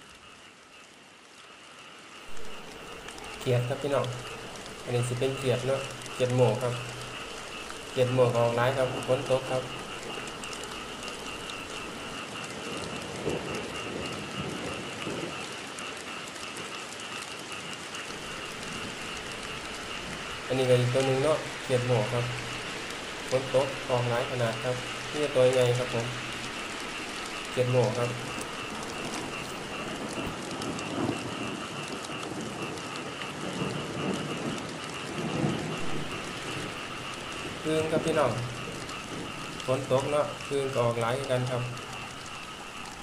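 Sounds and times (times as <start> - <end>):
rain on wet ground and leaves: 0.0 - 43.0
high-pitched drone: 2.3 - 14.2, 18.1 - 31.1.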